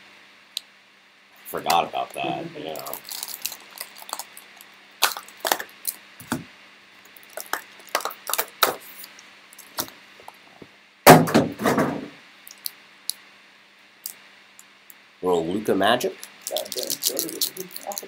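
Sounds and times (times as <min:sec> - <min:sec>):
foil packs crinkling: 0:02.7 - 0:06.0, 0:07.2 - 0:10.0, 0:16.3 - 0:18.0.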